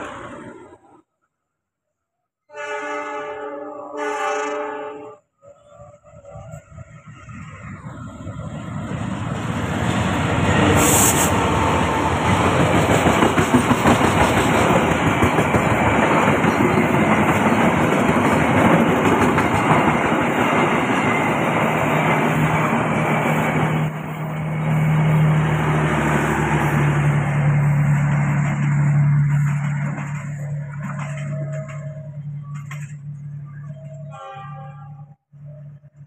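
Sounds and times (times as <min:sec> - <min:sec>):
diesel train arriving: 0:00.0 - 0:01.0, 0:05.2 - 0:36.0
train wheels clickety-clack: 0:08.5 - 0:23.9, 0:27.5 - 0:33.3
brief high hiss: 0:10.8 - 0:11.4.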